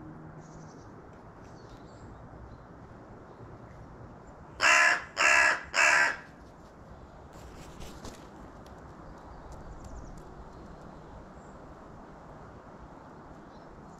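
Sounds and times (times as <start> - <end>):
crow cawing: 4.6 - 6.3.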